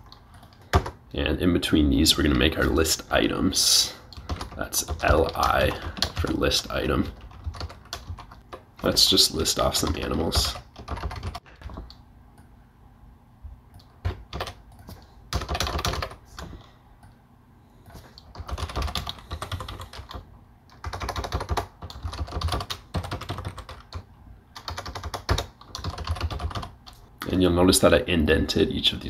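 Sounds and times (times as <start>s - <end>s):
computer keyboard typing: 0.0s - 1.0s, 4.1s - 9.0s, 9.8s - 12.0s, 13.7s - 16.6s, 17.9s - 27.0s.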